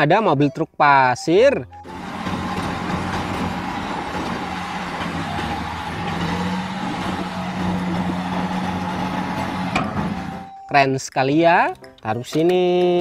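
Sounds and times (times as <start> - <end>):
diesel truck engine running: 1.7 - 10.7.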